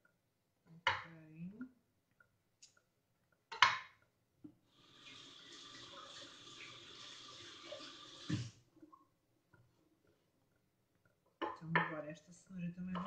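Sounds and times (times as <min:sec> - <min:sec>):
kitchen tap running: 0:04.7 - 0:08.6.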